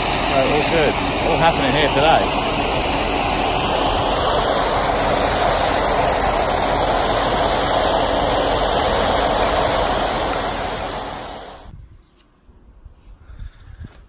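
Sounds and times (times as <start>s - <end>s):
truck engine and turning drum: 0.0s - 11.7s.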